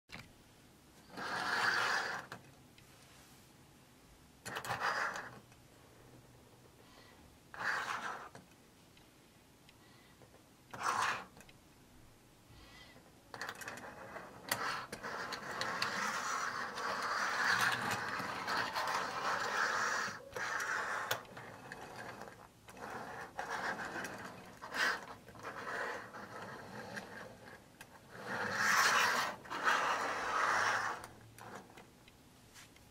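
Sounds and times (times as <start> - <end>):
toy car wheels rolling on tabletop: 1.0 - 2.5, 4.5 - 6.6, 7.5 - 8.5, 10.2 - 11.5, 13.0 - 31.9.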